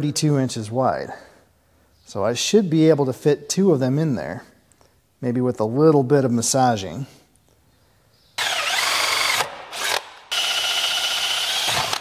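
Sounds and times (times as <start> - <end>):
cordless drill motor running: 8.4 - 12.0.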